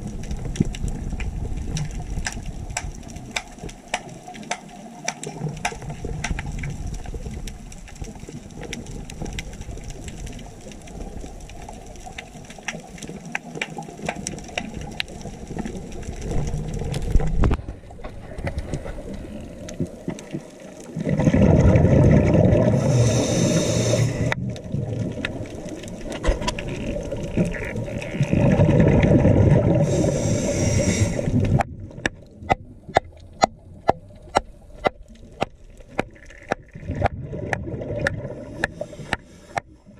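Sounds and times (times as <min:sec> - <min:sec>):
underwater crackle of clicks: 0:00.0 - 0:39.8
scuba exhaust bubbles rushing: 0:20.9 - 0:39.9.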